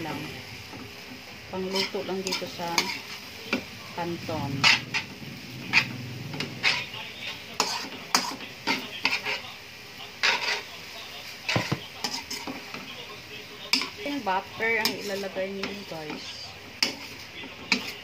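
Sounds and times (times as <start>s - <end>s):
light sizzle from pan: 0.0s - 18.0s
metal spatula scraping a wok: 1.6s - 9.6s, 10.2s - 10.8s, 11.4s - 12.7s, 13.7s - 18.0s.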